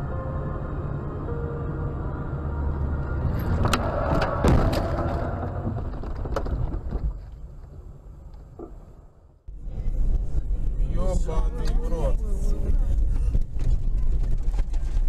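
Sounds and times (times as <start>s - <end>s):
car engine and road rumble: 0.0s - 15.0s
car crash bangs: 3.4s - 7.0s.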